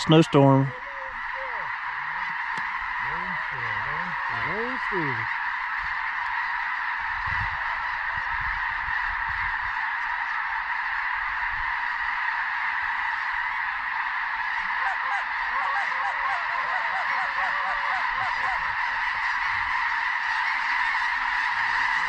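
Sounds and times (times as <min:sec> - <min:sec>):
flock of geese honking: 0:00.0 - 0:22.0.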